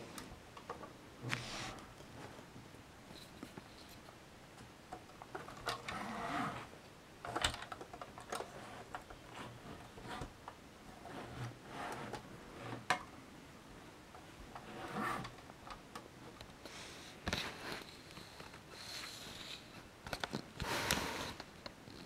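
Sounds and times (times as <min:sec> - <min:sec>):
soft rubbing on cloth: 0:01.2 - 0:02.4.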